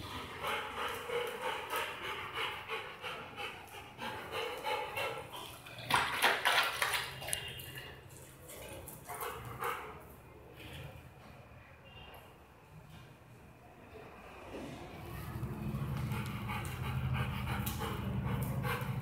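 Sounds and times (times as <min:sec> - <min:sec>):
dog panting: 0:00.0 - 0:06.9, 0:15.4 - 0:19.0
dog lapping water: 0:05.2 - 0:09.2.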